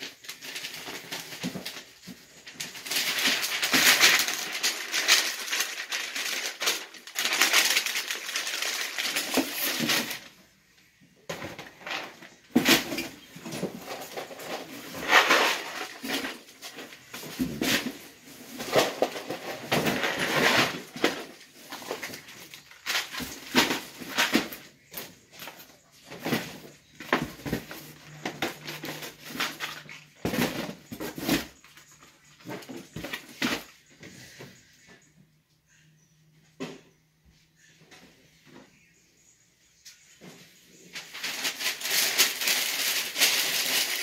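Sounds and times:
kitchen items knocking and clunking: 0.0s - 10.4s, 11.2s - 34.6s.

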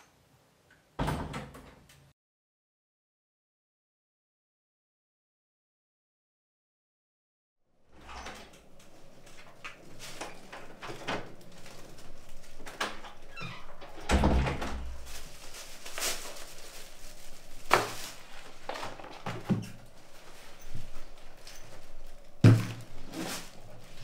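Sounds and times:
heavy low door thud: 13.9s - 15.1s.

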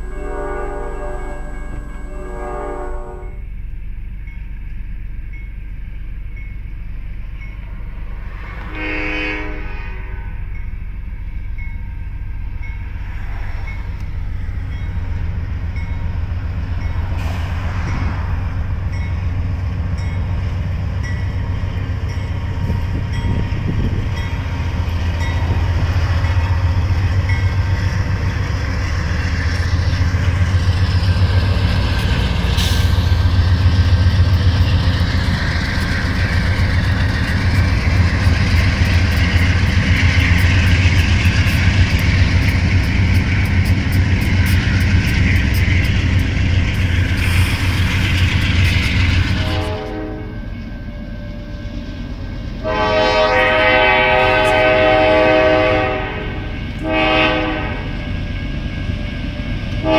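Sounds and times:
train horn blast: 0.0s - 3.4s, 8.3s - 10.5s, 49.3s - 50.5s, 52.6s - 58.0s
crossing bell dinging: 0.0s - 47.1s, 48.5s - 59.9s
deep locomotive engine rumble: 0.0s - 59.9s.

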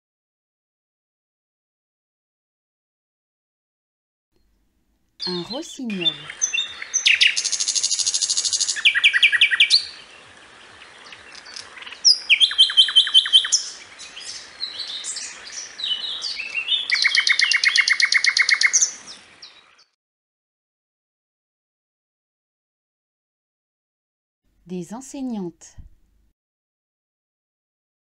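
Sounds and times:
nightingale singing: 5.2s - 19.9s.

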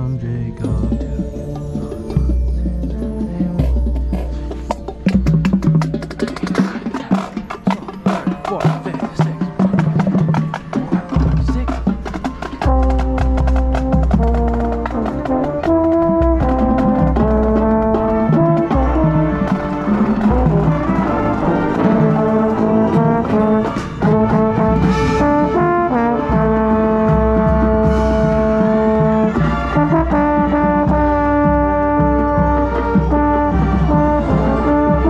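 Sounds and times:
marching band brass chords: 0.6s - 35.0s
drum hits: 0.7s - 34.2s.

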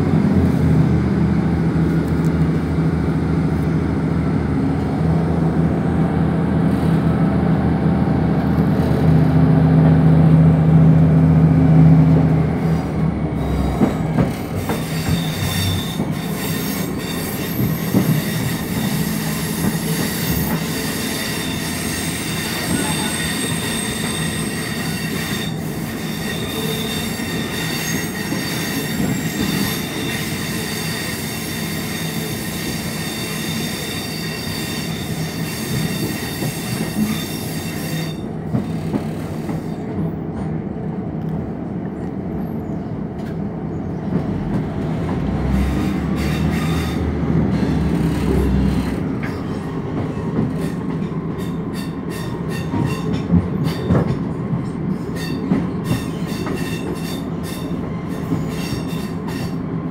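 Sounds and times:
diesel train engine: 0.0s - 59.9s
wheel and rail running noise: 8.4s - 59.7s
high-pitched wheel squealing: 13.4s - 39.8s.

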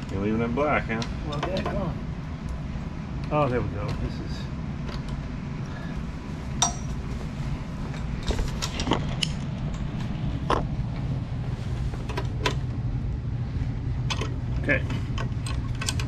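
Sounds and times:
steady low hum: 0.0s - 16.0s
wrench clinking on bolts: 6.6s - 6.9s.

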